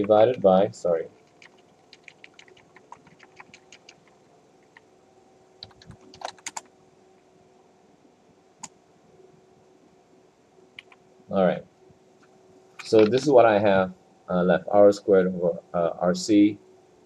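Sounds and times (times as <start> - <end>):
computer keyboard typing: 0.0 - 0.6, 1.2 - 4.9, 5.6 - 6.7, 10.8 - 11.0
faint steady hum: 0.0 - 17.0.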